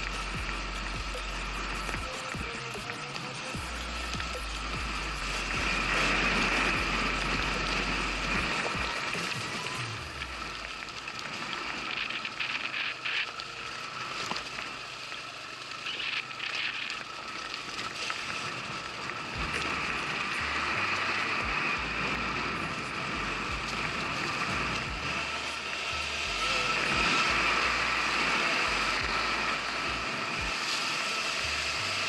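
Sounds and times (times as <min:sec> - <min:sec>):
low rumbles: 0:00.0 - 0:02.9, 0:03.6 - 0:13.0, 0:17.5 - 0:30.6
electric motorcycle motor whine: 0:00.0 - 0:32.0
tyre and wind noise: 0:17.8 - 0:32.0.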